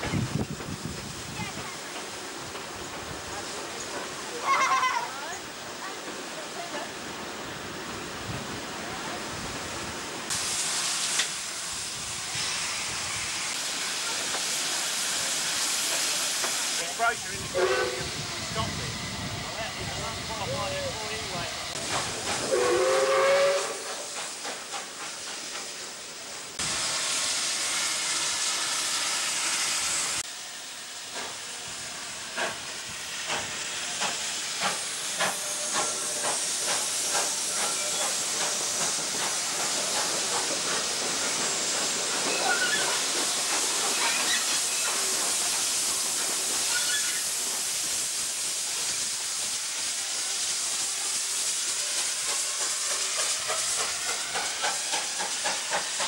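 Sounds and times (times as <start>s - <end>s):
steam locomotive hissing: 0.0s - 56.0s
steam whistle: 17.5s - 18.2s, 22.4s - 24.1s.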